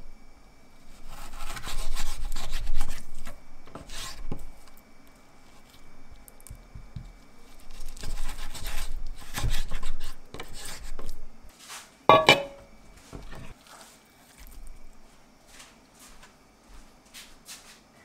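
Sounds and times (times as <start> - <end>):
knife slicing on wooden board: 1.1 - 3.0
metal bowl clanking down: 12.1 - 12.6.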